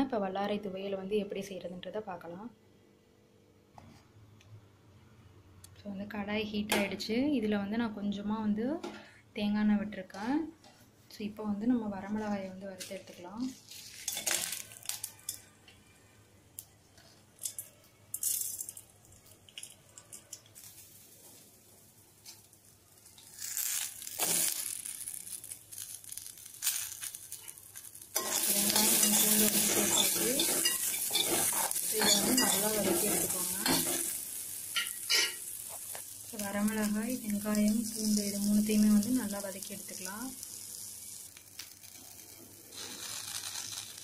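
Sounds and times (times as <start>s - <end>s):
aromatics sizzling in hot oil: 11.9s - 15.5s, 17.0s - 44.0s
spoon scraping and clicking in pan: 28.2s - 34.1s, 34.7s - 35.9s.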